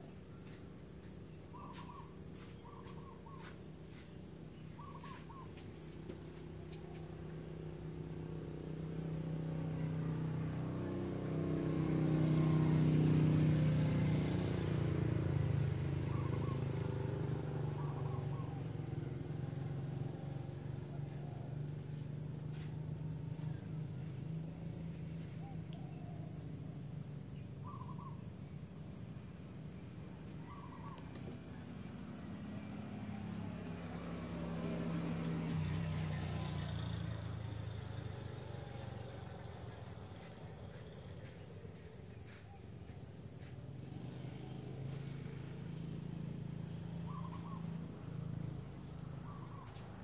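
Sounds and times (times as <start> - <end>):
pulsing insect trill: 0.0 - 50.0
vehicle engine rumble: 0.0 - 50.0
bird chirps: 1.4 - 5.7, 16.1 - 17.0, 27.3 - 28.2, 30.2 - 31.7, 47.0 - 47.9, 49.0 - 49.9.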